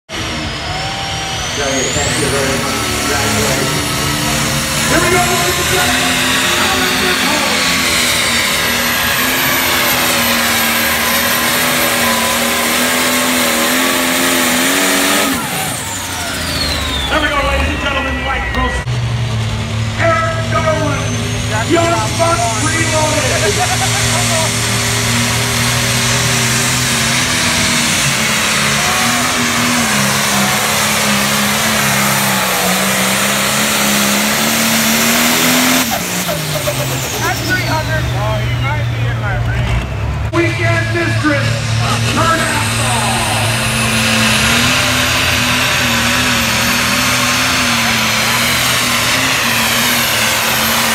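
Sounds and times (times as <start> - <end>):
diesel engine running under load: 0.1 - 50.9.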